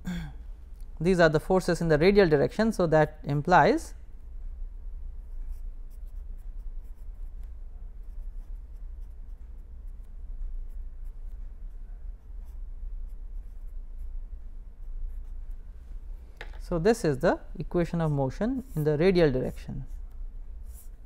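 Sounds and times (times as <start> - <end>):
steady low hum: 0.0 - 21.0
pen writing on paper: 5.3 - 10.1, 12.4 - 14.1, 14.8 - 15.4, 20.6 - 21.0.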